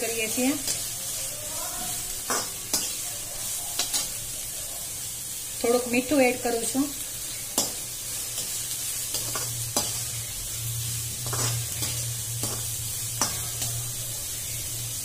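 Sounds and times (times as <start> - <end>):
vegetables sizzling in hot oil: 0.0 - 15.0
metal spoon scraping a pan: 0.2 - 4.3, 7.1 - 14.8
low hum: 9.4 - 15.0.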